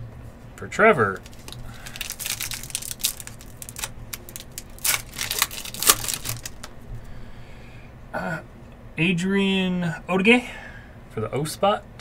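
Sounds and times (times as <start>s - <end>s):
foil wrapper tearing and crinkling: 1.0s - 6.7s.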